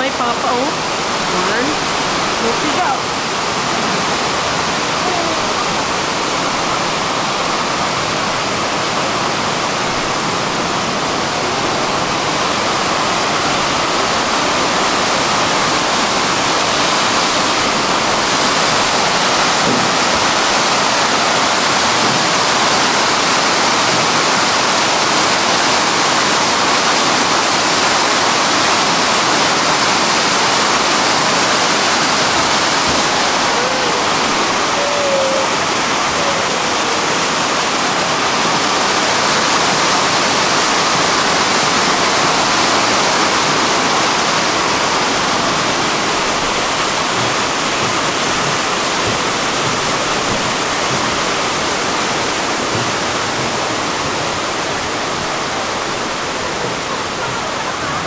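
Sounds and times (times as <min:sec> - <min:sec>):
waterfall rushing: 0:00.0 - 0:58.0.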